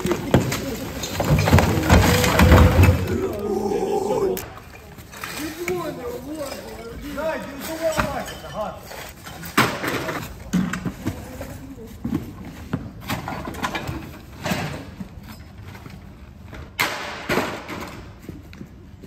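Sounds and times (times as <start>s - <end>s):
scrap metal and junk clanking: 0.0s - 3.3s, 4.8s - 10.6s.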